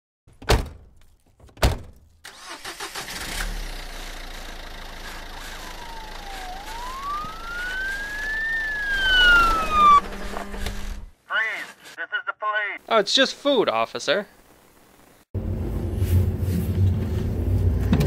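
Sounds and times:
car engine starting and revving: 2.3 - 11.1.

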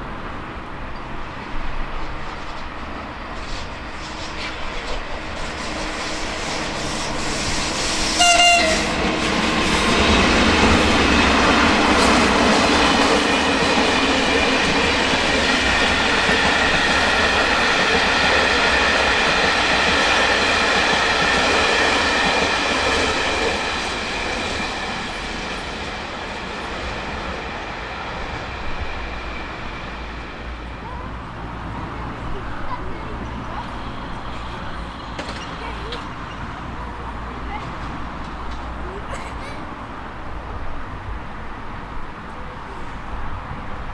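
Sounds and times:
train passing with wheel noise: 0.0 - 43.9
train horn toot: 8.1 - 9.2.

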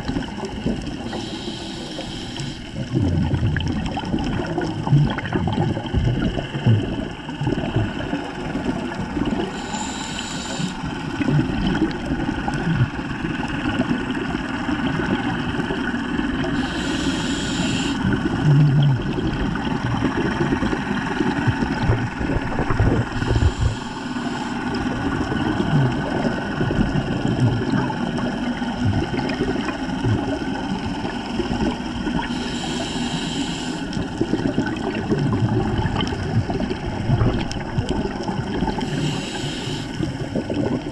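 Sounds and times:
hissing exhaled bubbles: 0.0 - 40.9
underwater water rumble: 0.0 - 40.9.

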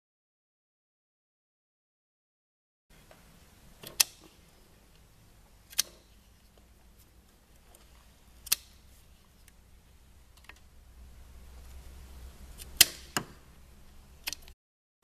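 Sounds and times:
pliers clicking on metal clamp: 5.7 - 6.1, 8.4 - 8.8.

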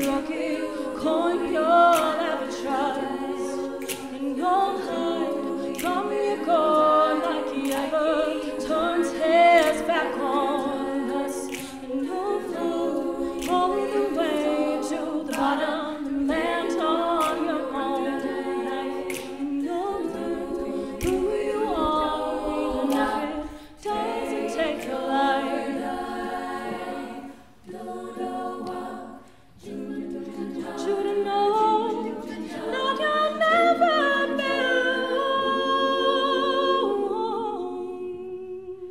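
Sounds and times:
women singing a cappella in harmony: 0.0 - 38.9
finger clicks: 3.7 - 8.8, 9.5 - 25.9.

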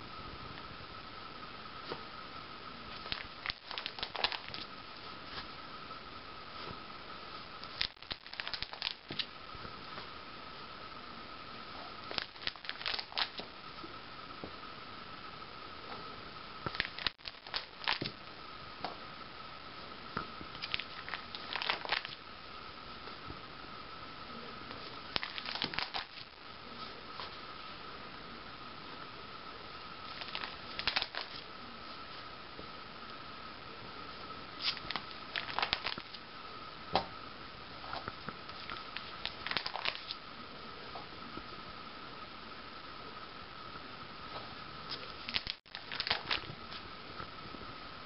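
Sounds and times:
faint high whine: 0.0 - 48.0
binder page flipping: 2.9 - 4.7, 12.1 - 13.4, 20.6 - 22.2, 30.1 - 31.4, 38.6 - 40.2, 44.9 - 46.5
plastic card sleeves crinkling: 2.9 - 4.7, 7.6 - 9.3, 12.0 - 13.4, 16.7 - 18.2, 20.6 - 22.2, 25.1 - 26.3, 30.1 - 31.4, 34.6 - 36.2, 38.6 - 40.2, 44.9 - 46.8.

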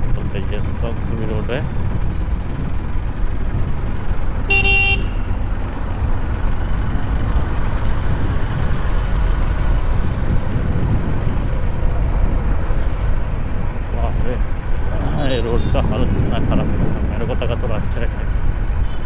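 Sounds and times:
motorcycle engine and road noise: 0.0 - 19.0
horn beep: 4.5 - 5.4, 15.1 - 15.9
wind on microphone: 5.9 - 19.0.

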